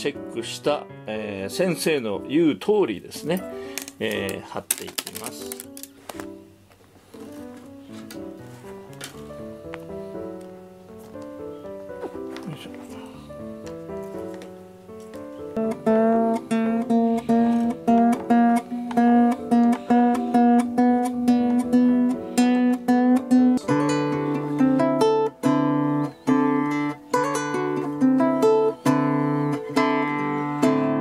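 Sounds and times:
fingerstyle classical guitar: 13.4 - 31.0.

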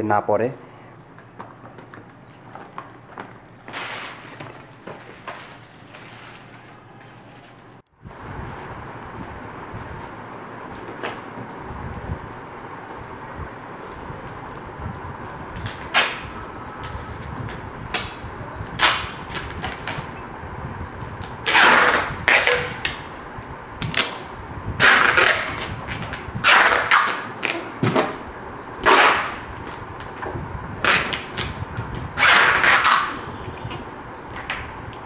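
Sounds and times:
packing tape pulled off roll: 3.7 - 7.8, 15.6 - 18.2, 18.8 - 20.1, 21.2 - 23.0, 24.8 - 28.2, 28.8 - 30.2, 30.8 - 33.2.

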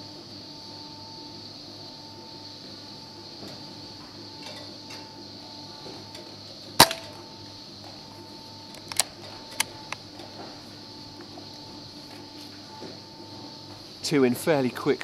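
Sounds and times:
faint steady hum: 0.0 - 15.0
air rifle shot: 6.8 - 7.2.

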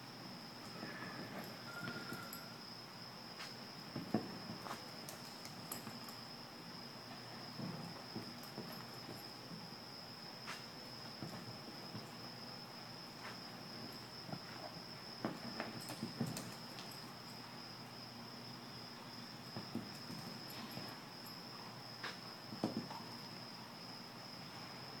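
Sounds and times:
horse hooves thudding in dirt: 3.4 - 6.4, 7.1 - 17.7, 19.2 - 21.4.

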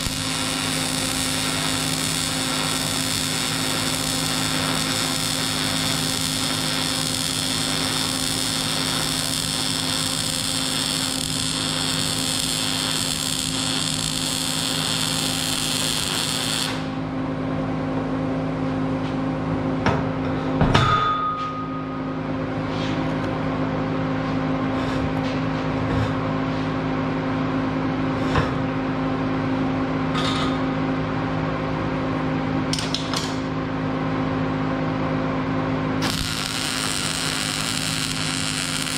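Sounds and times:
welder arc crackling: 0.0 - 17.0, 36.0 - 38.9
steady low hum: 0.0 - 38.9
metal clank ringing: 20.7 - 22.2.

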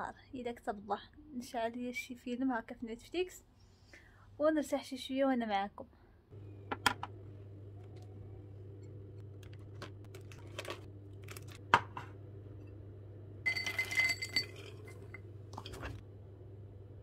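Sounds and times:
steady low hum: 6.3 - 17.0
tableware clicking and knocking: 13.5 - 16.0.

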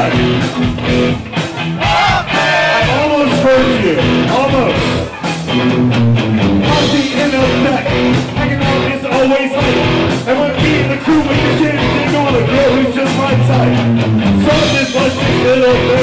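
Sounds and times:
live rock band playing: 0.0 - 16.0
man rapping into microphone: 2.8 - 5.0, 6.6 - 16.0.

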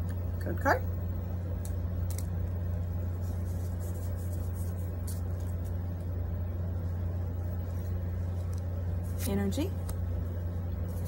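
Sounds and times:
steady low hum: 0.0 - 11.0
trading cards being shuffled: 1.6 - 6.1, 7.6 - 11.0.

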